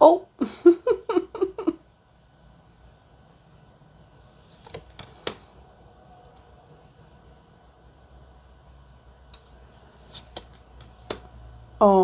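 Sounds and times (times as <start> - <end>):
tarot cards swishing: 9.8 - 11.3
cards clicking and snapping: 10.0 - 11.3.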